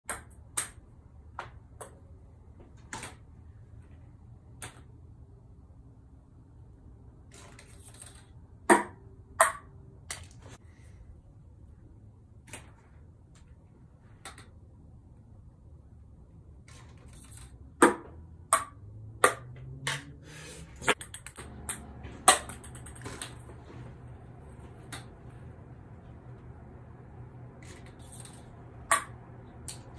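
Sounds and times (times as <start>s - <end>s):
low steady hum: 0.1s - 29.9s
ping pong ball clicking: 8.7s - 9.7s, 17.8s - 20.2s, 20.9s - 23.4s, 28.8s - 29.8s.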